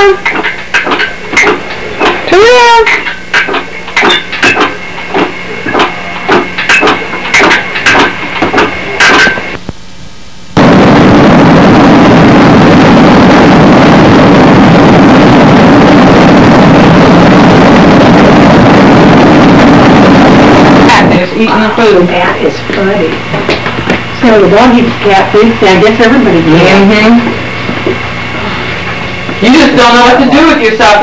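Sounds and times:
faint hum: 0:00.0 - 0:31.0
loud steady videotape hiss: 0:00.0 - 0:31.0.

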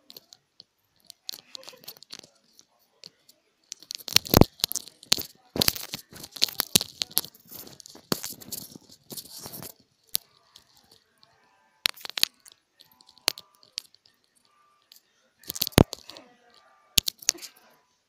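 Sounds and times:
rustling and crinkling: 0:00.0 - 0:17.8.

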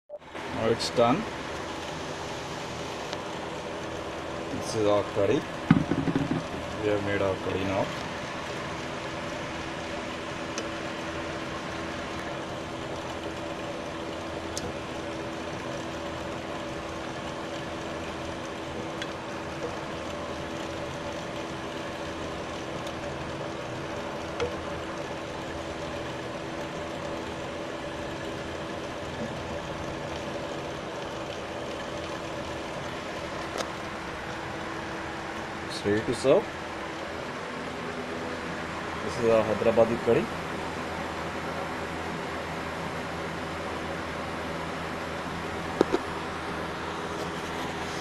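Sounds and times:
motor humming: 0:00.2 - 0:48.0.

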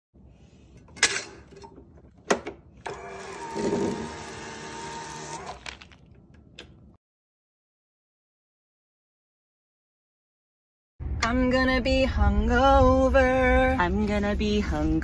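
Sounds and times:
electric fry cutter motor: 0:02.9 - 0:05.7.

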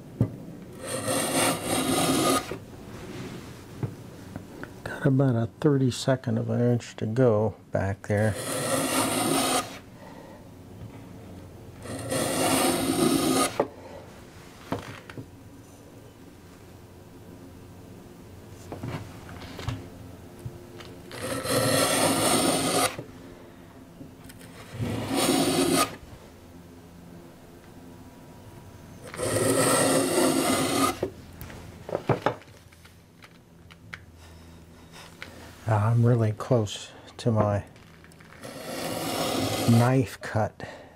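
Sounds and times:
hand plane cutting wood: 0:00.8 - 0:02.6, 0:08.3 - 0:09.8, 0:11.8 - 0:13.7, 0:21.1 - 0:23.0, 0:24.5 - 0:26.0, 0:29.0 - 0:31.1, 0:38.4 - 0:39.8.

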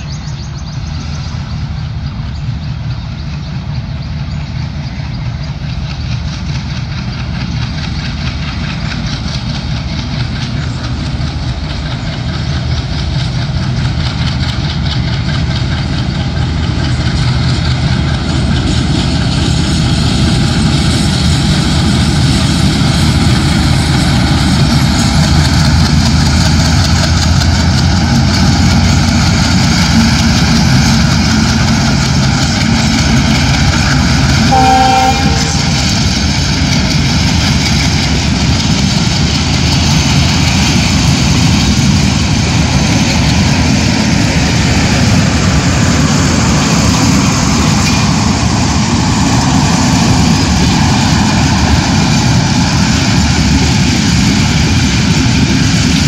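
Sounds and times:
diesel locomotive engine: 0:00.0 - 0:56.0.

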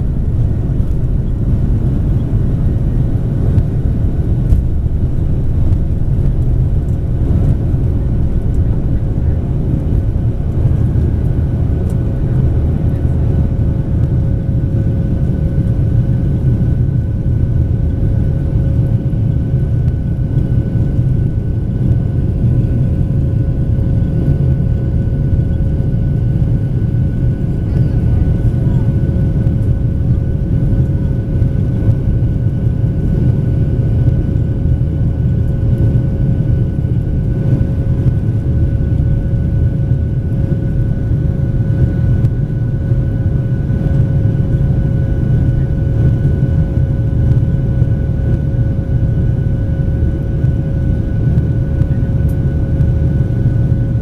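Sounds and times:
airplane cabin rumble: 0:00.0 - 0:54.0.

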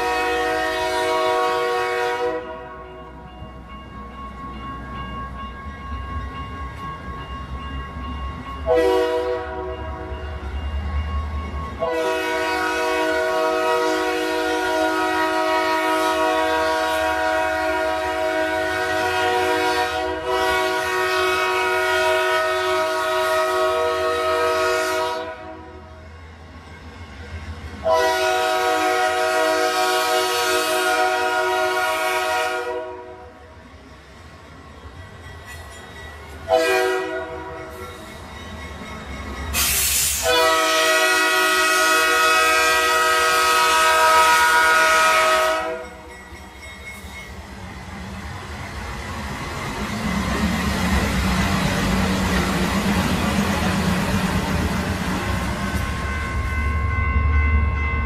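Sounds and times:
locomotive air horn blasts: 0:00.0 - 0:02.8, 0:08.6 - 0:09.8, 0:11.8 - 0:25.8, 0:27.8 - 0:33.4, 0:36.5 - 0:37.7, 0:39.6 - 0:46.0.

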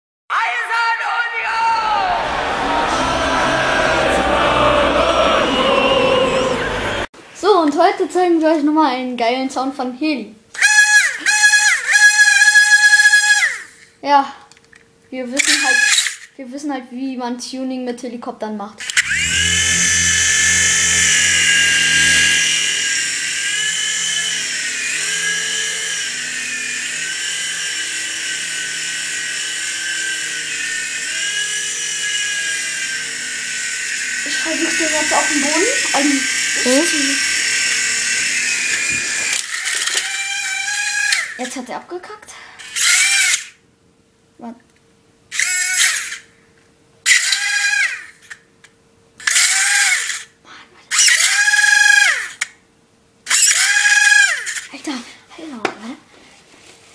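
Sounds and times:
toy helicopter motor whine: 0:10.6 - 0:13.9, 0:15.4 - 0:16.3, 0:18.8 - 0:41.6, 0:42.6 - 0:43.6, 0:45.3 - 0:46.4, 0:47.0 - 0:48.5, 0:49.2 - 0:52.5, 0:53.3 - 0:54.8.

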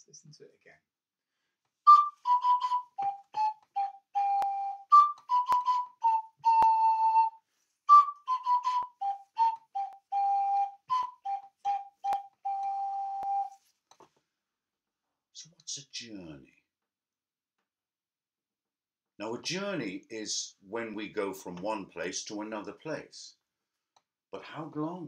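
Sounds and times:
ocarina tune: 0:01.9 - 0:13.6.

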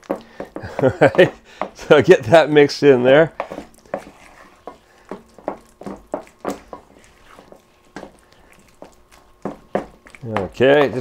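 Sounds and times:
utensil knocking against a bowl: 0:00.0 - 0:01.8, 0:04.7 - 0:06.9, 0:09.4 - 0:11.0.

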